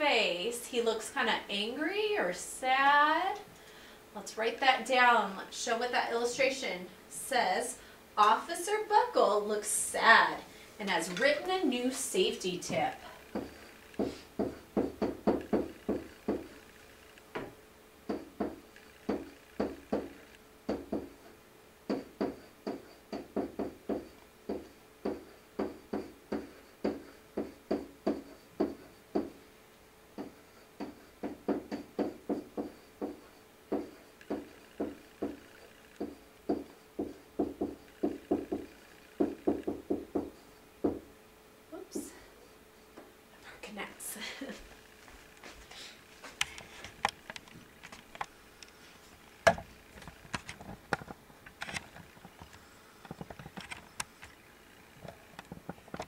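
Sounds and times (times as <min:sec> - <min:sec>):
faint steady hum: 0:00.0 - 0:56.0
pen tapping and scraping on whiteboard: 0:13.3 - 0:16.6, 0:21.9 - 0:29.4, 0:30.2 - 0:40.4.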